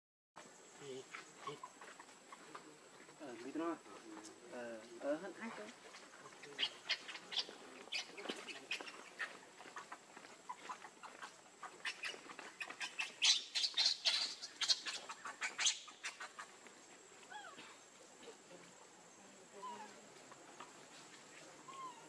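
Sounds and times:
baby monkey squeaking: 1.4s - 2.1s, 6.5s - 9.9s, 10.5s - 16.5s.

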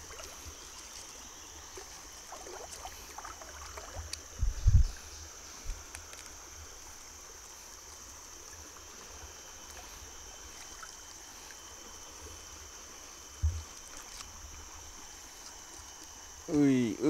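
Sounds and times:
river water flowing: 0.0s - 17.0s
dull low bump: 13.4s - 13.7s.

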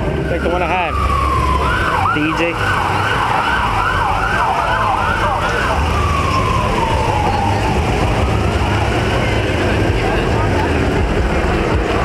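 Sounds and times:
emergency vehicle siren: 0.0s - 12.0s
low rumble of car engines: 0.0s - 12.0s.

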